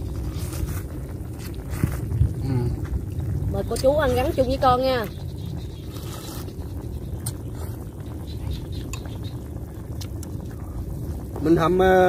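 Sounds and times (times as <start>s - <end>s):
slurping broth: 0.0s - 3.3s, 5.8s - 6.6s
wind rumble on microphone: 0.0s - 12.0s
eating noodles with chopsticks: 5.8s - 6.5s.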